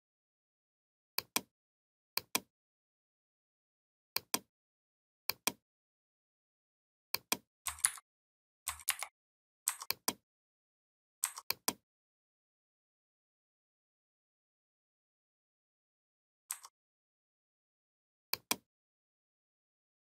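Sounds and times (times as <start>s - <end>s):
computer mouse buttons clicking: 1.2s - 1.5s, 2.2s - 2.5s, 4.2s - 4.5s, 5.3s - 5.6s, 7.2s - 8.0s, 8.7s - 9.1s, 9.7s - 10.2s, 11.2s - 11.8s, 16.5s - 16.8s, 18.3s - 18.6s.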